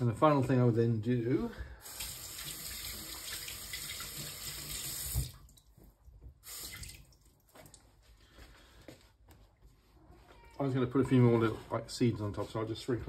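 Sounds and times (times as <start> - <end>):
kitchen tap running: 1.8 - 5.6, 6.4 - 7.2.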